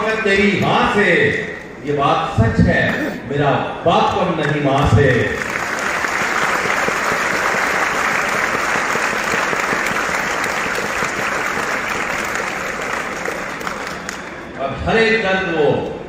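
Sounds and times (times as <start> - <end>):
audience applauding: 5.2 - 14.4.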